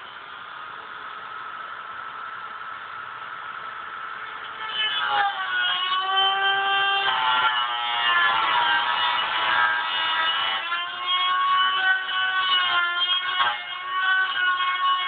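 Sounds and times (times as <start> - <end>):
rotary tool cutting sheet metal: 4.2 - 15.0.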